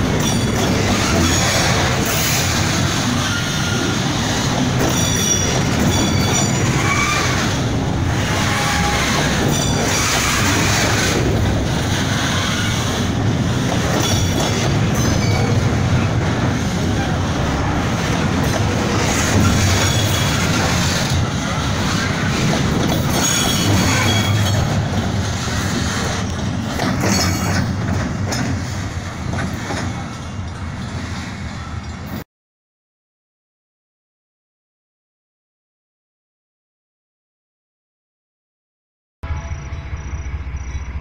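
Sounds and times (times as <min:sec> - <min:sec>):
steel wheels rumbling on rail: 0:00.0 - 0:32.2.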